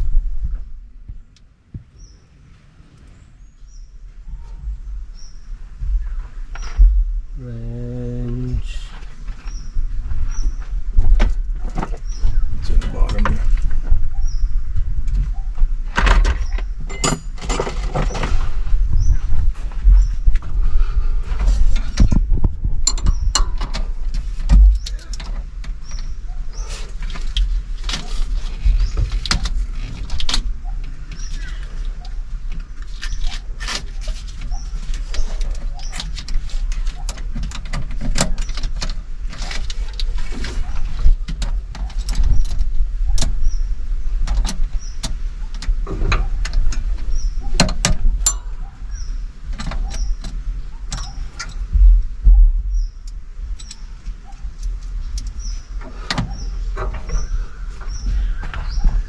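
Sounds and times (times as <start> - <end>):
steady low rumble: 0.0 - 59.0
wrench and metal hardware clinking: 16.9 - 17.8, 48.2 - 48.5.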